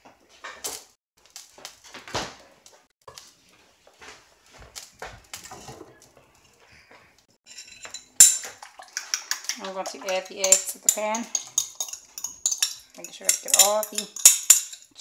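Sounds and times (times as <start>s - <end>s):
bowl clinking on pan: 7.5s - 15.0s
dishes and utensils clicking: 7.5s - 15.0s.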